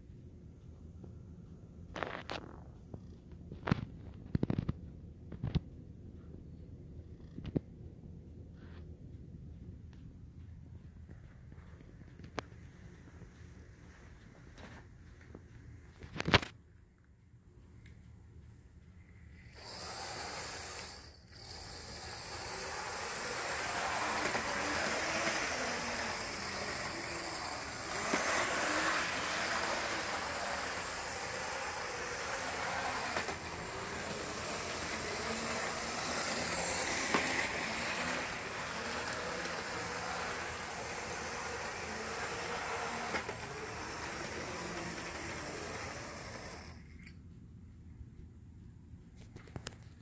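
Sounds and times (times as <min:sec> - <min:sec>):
toy train motor whirring: 0:19.2 - 0:47.2
toy train wheel rattle: 0:19.4 - 0:47.2.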